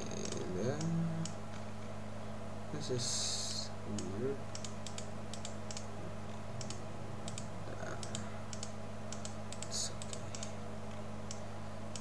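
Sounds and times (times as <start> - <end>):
steady low hum: 0.0 - 12.0
computer mouse clicks: 3.9 - 5.9, 6.6 - 10.5, 11.3 - 12.0
keyboard clicks: 3.9 - 5.9, 6.6 - 10.5.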